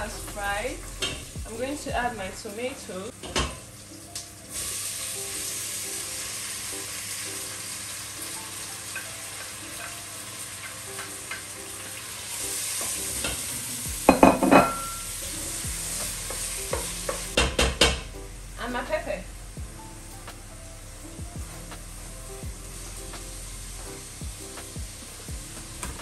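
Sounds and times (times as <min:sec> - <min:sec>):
tomatoes sizzling in oil: 0:00.0 - 0:26.0.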